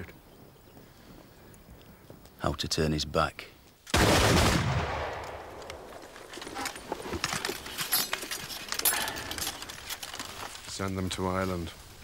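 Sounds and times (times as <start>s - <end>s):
metallic clicks of muskets reloading: 5.2s - 10.6s.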